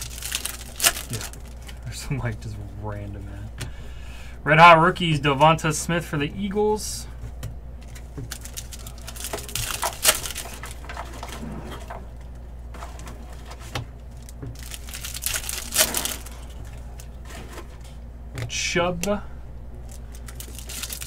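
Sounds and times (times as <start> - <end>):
card wrappers crinkling and tearing: 0.0 - 1.8, 7.8 - 12.0, 12.8 - 17.6, 19.8 - 21.0
cards being handled: 7.3 - 11.4, 12.8 - 18.0.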